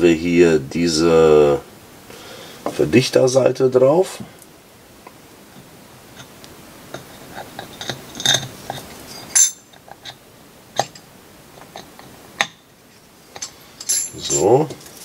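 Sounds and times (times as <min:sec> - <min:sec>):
metal parts clinking and scraping: 0:07.6 - 0:10.2, 0:13.3 - 0:15.0.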